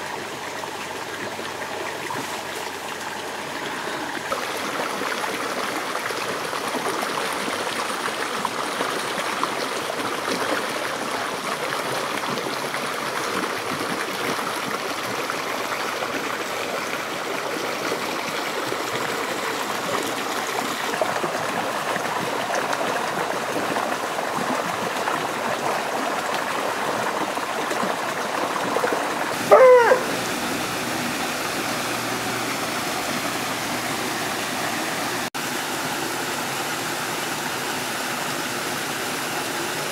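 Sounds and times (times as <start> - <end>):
waterfall rushing into pool: 0.0 - 39.9
wavering dog call: 29.4 - 30.8.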